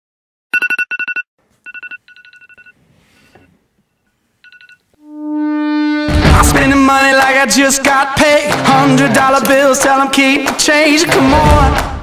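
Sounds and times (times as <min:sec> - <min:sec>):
smartphone beeping: 0:00.6 - 0:03.5
low steady synth note: 0:05.0 - 0:06.8.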